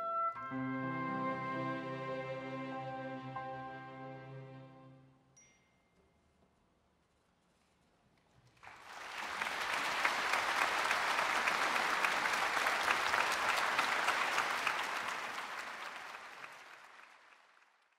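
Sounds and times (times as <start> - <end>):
audience applauding: 8.6 - 17.9.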